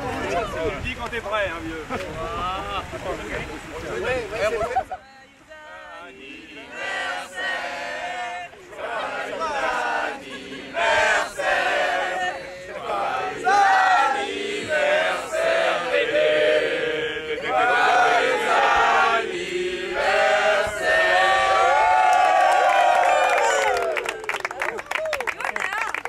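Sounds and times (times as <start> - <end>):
group singing birthday song: 5.4 - 22.2.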